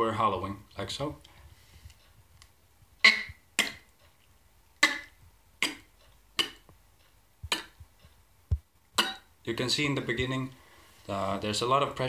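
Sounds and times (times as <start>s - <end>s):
beatboxing hollow click: 3.0s - 3.9s, 4.8s - 6.8s, 7.4s - 8.0s, 9.0s - 9.3s.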